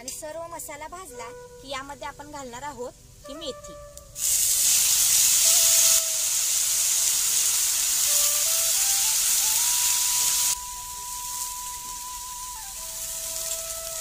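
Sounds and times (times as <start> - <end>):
single-note background melody: 1.0 - 2.3, 3.2 - 4.2, 8.1 - 14.0
leaves sizzling in hot oil: 2.5 - 14.0.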